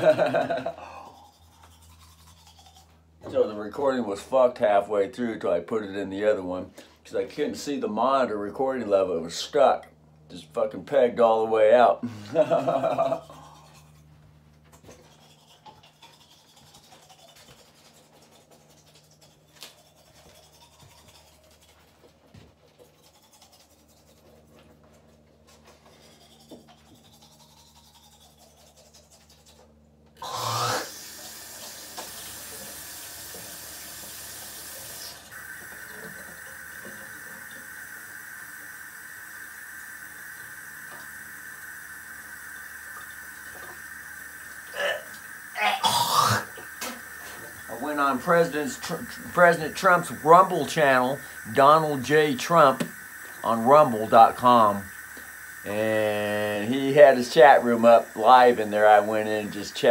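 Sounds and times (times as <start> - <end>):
water running into metal sink: 46.5 - 59.9.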